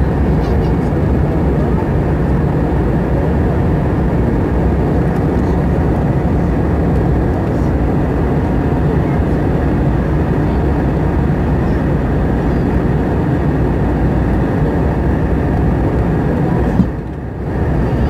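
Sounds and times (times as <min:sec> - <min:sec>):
aircraft engine roar in cabin: 0:00.0 - 0:18.0.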